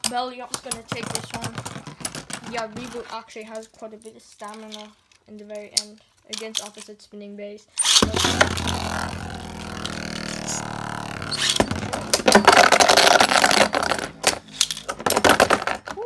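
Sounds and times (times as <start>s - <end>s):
tops clashing and grinding: 7.8s - 16.0s
spinning tops whirring hum: 8.0s - 14.4s.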